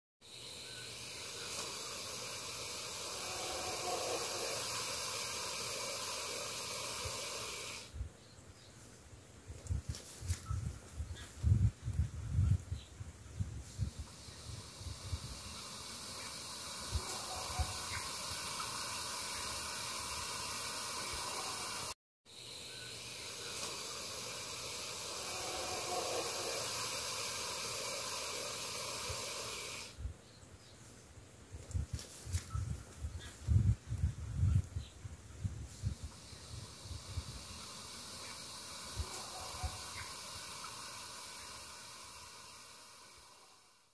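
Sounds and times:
snake hissing: 0.2 - 8.0, 13.6 - 30.0, 35.6 - 43.9.

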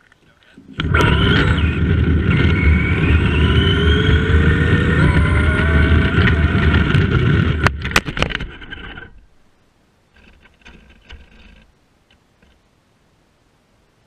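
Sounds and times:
electric motor whining: 0.6 - 7.9
tyres rumbling on asphalt: 0.6 - 9.2.

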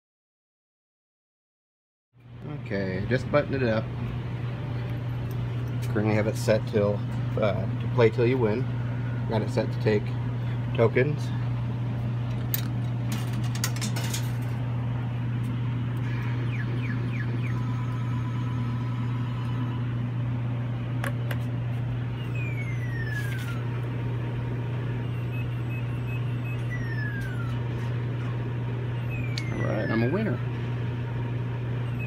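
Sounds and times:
steady low hum: 2.2 - 32.0
coin mechanism clicks: 12.6 - 14.5
short electronic beeps: 25.0 - 27.5, 29.0 - 30.4.

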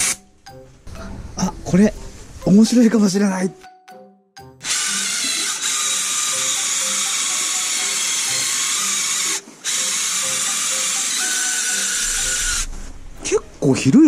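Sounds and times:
abrasive wheel grinding whir: 4.7 - 13.2.

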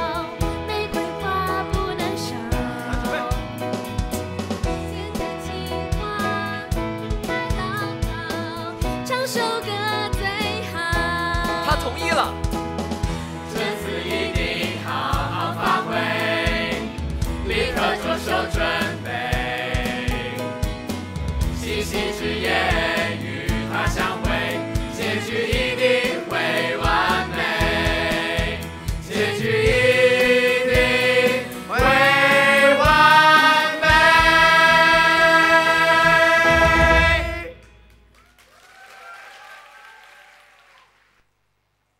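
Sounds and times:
musical accompaniment with steady beat: 0.0 - 38.1
cast singing in chorus: 21.6 - 37.6.

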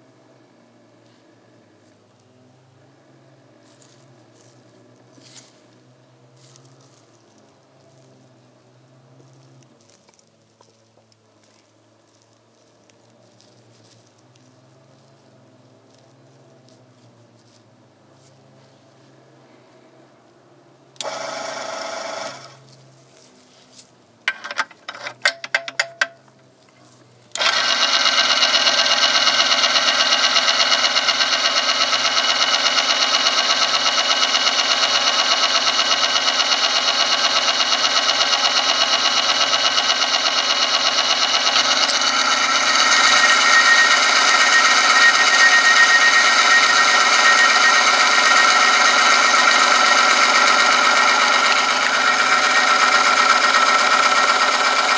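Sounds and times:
machine motor whining: 21.0 - 22.6, 27.3 - 54.9
clicks: 27.3 - 54.9.

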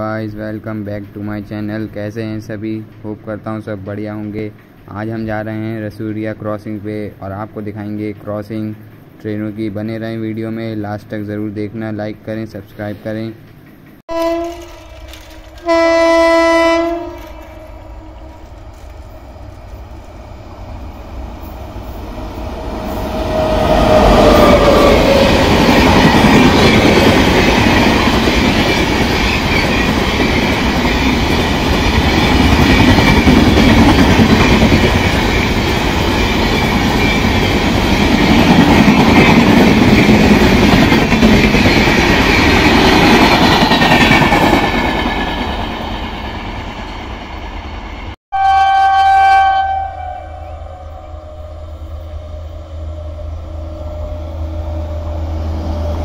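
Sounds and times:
train passing at speed: 0.0 - 10.8, 12.4 - 48.2, 49.5 - 56.0
train horn: 14.1 - 18.5, 48.3 - 55.8.

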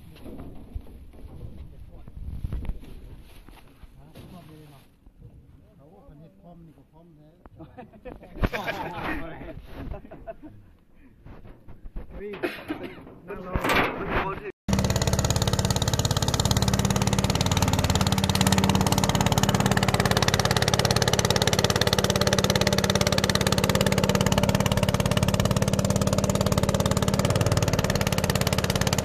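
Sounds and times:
boat motor pulsing: 14.7 - 29.0.

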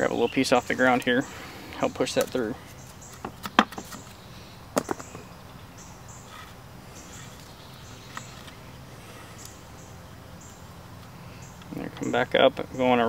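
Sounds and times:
sharp wooden clicks: 2.1 - 4.2.

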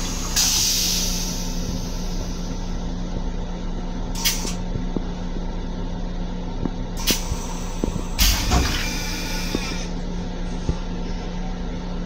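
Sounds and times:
air hiss: 0.0 - 2.6
train car hum and rumble: 0.0 - 12.0.

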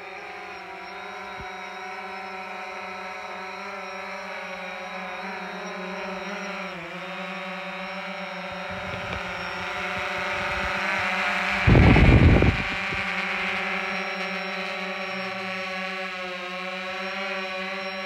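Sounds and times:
drone propellers buzzing: 0.0 - 18.0
rotor downwash rumble on microphone: 1.1 - 18.0.

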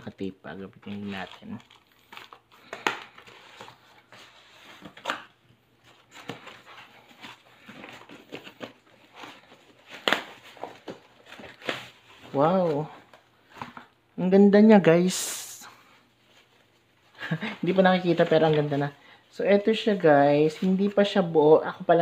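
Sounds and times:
wrapping rustling: 0.5 - 14.0.

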